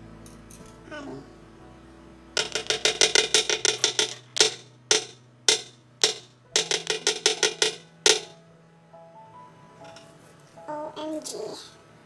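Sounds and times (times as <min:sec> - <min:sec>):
spoon tapping plastic jar: 0:02.4 - 0:08.4.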